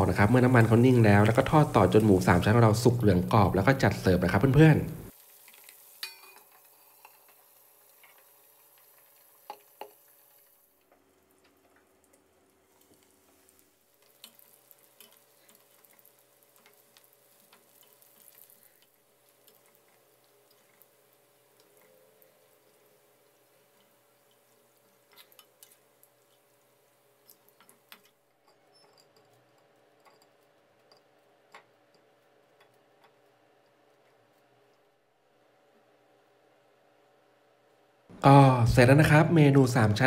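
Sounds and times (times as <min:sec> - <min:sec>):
meat crackling in frying oil: 0:00.0 - 0:28.8.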